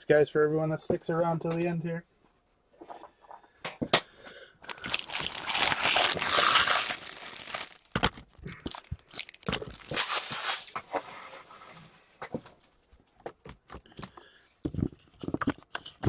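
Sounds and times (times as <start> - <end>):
foil wrappers crumpling: 4.6 - 10.8.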